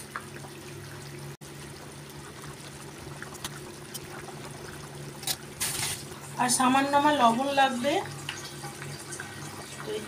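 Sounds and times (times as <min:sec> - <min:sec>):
broth bubbling in a pan: 0:00.0 - 0:10.0.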